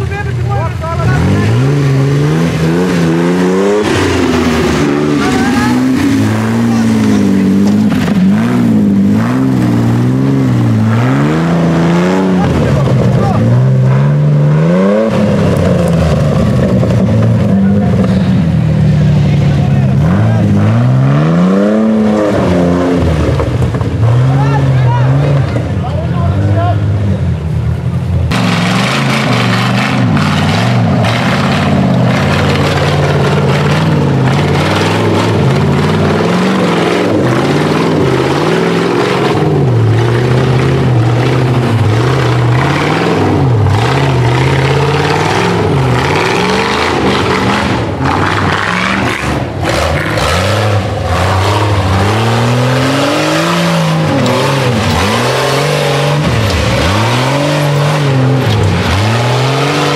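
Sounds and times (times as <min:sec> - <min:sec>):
buggy engine revving: 0:00.0 - 0:59.9.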